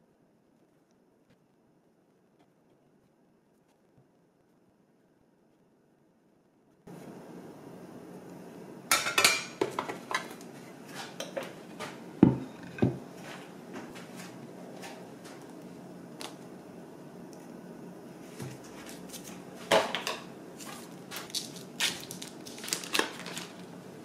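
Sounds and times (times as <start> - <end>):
cutting board knocks: 12.2 - 13.0.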